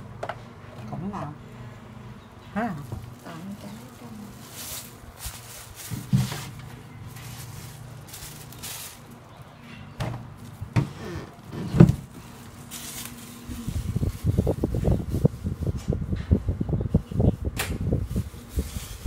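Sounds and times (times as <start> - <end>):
salad rustling: 2.8 - 15.6.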